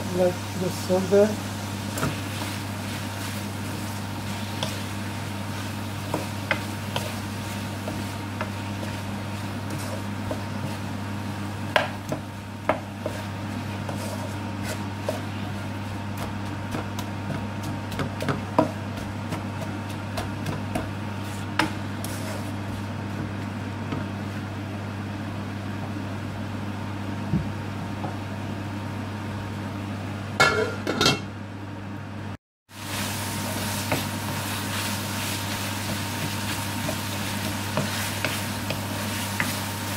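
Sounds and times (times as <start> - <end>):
wooden spatula scraping a wok: 0.6 - 23.4, 32.8 - 39.9.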